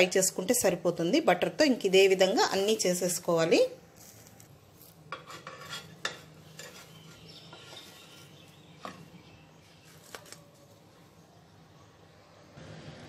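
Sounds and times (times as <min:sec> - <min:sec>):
butter sizzling: 0:00.0 - 0:08.3
spatula scraping metal pan: 0:05.1 - 0:09.0.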